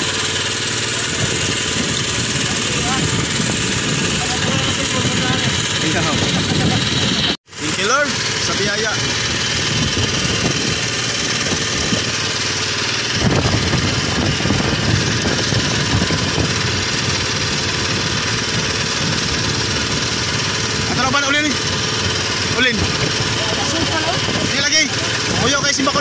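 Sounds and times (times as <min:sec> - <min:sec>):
boat engine running: 0:00.0 - 0:26.0.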